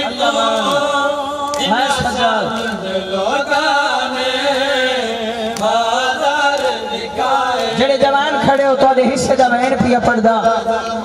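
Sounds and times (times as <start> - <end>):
man chanting a lament: 0.0 - 11.0.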